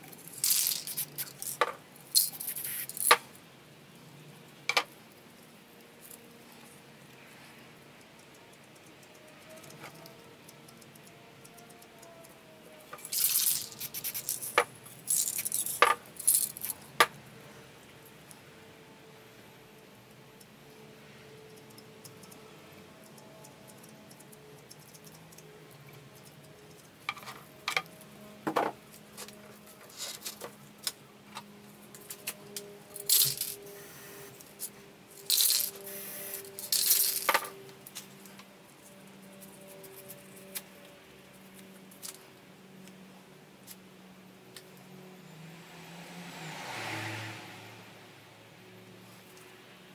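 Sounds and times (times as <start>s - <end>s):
spray paint can hissing: 0.4s - 1.5s, 2.2s - 3.2s, 13.1s - 14.6s, 35.3s - 37.0s
spray can hissing: 2.3s - 3.0s, 35.9s - 36.4s.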